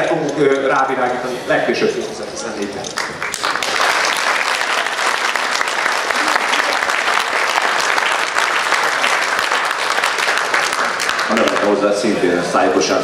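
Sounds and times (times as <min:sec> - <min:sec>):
audience applauding: 0:02.9 - 0:12.1.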